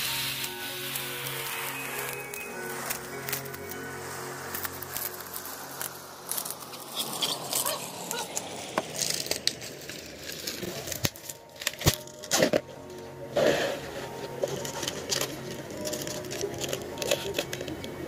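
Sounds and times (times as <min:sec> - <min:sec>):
background music: 0:00.0 - 0:18.0
bubble wrap crinkling: 0:00.0 - 0:18.0
tape being torn off: 0:04.5 - 0:12.6.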